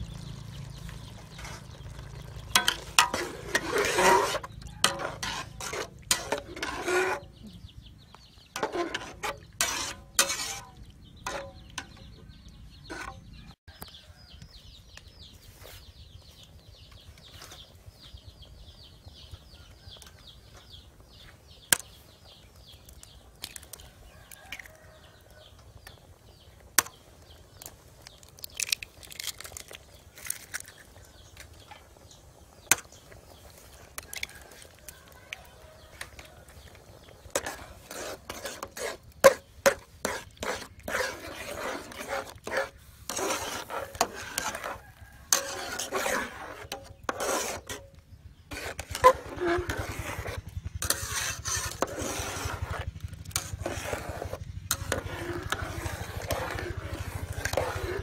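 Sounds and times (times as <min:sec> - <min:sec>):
metal spatula scraping pot: 0:00.2 - 0:13.6, 0:18.3 - 0:58.0.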